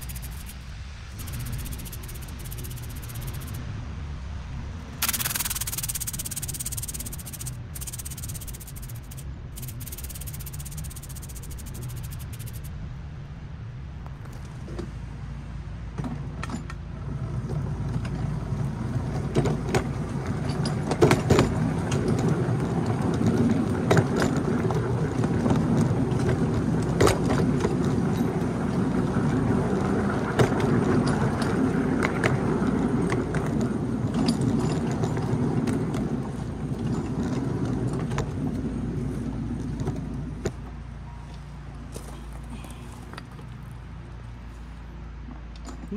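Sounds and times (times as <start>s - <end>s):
miniature train rumbling on track: 0.0s - 3.6s, 5.0s - 12.7s, 15.8s - 45.9s
clicks and knocks of train: 19.1s - 38.6s.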